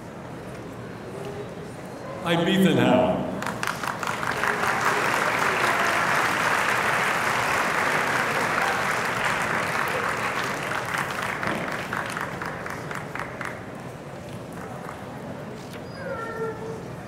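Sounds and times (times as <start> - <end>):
audience applauding: 3.3 - 13.9.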